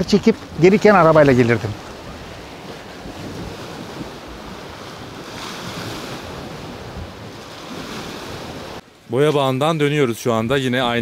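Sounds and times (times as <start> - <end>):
wind buffeting microphone: 0.0 - 8.8
sea waves on shore: 0.0 - 9.4.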